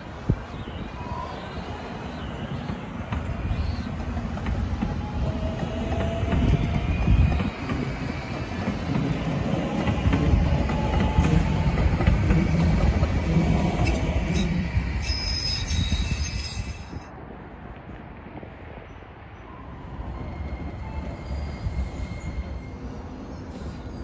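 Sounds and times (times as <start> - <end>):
train wheels rumbling on rails: 0.0 - 24.0
faint high squealing: 13.8 - 17.1, 19.5 - 24.0.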